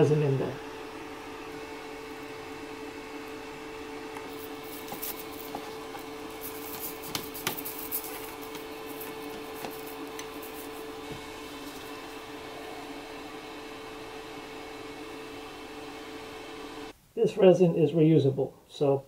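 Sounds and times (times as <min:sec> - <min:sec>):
steady low hum: 0:00.0 - 0:17.2
toothbrush scrubbing: 0:04.3 - 0:11.9.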